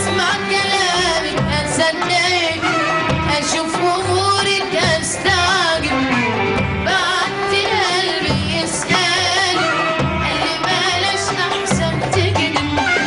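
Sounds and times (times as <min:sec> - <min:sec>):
percussion beat: 0:00.0 - 0:13.0
string orchestra: 0:00.0 - 0:13.0.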